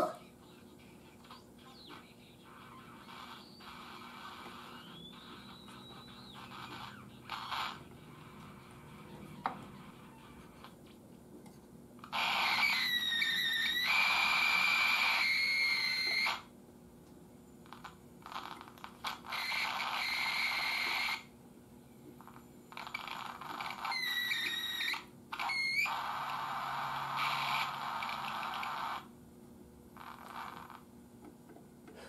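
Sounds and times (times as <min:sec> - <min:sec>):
radio static hiss: 0:00.0 - 0:11.1, 0:12.0 - 0:16.5, 0:17.6 - 0:29.2, 0:29.9 - 0:30.9
radio whistling squeals: 0:02.6 - 0:07.8, 0:12.1 - 0:16.5, 0:18.6 - 0:21.3, 0:22.4 - 0:29.1.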